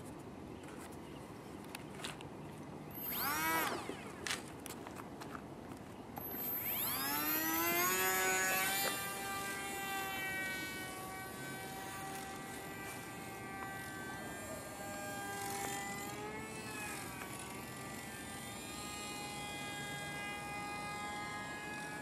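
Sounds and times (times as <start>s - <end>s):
model plane motor whine: 2.9s - 4.5s, 6.2s - 22.0s.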